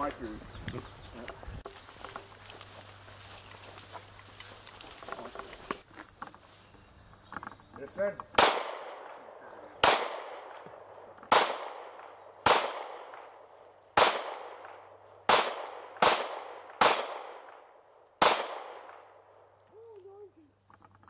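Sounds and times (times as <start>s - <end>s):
pistol shots with echo: 8.4s - 19.2s.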